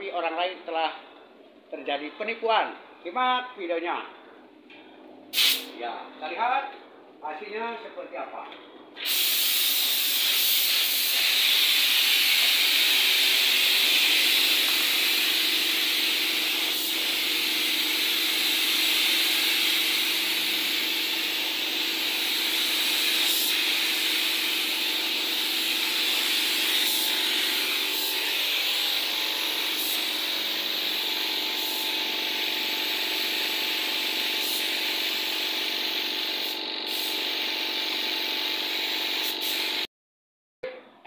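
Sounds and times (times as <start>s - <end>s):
paint spray gun hissing: 5.3s - 5.7s, 9.0s - 39.9s.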